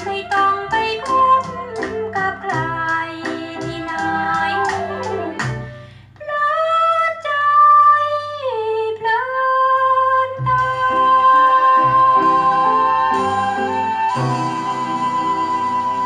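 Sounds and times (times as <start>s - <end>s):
lower musical accompaniment: 0.0s - 6.2s, 10.4s - 16.0s
woman singing long high notes: 0.0s - 16.0s.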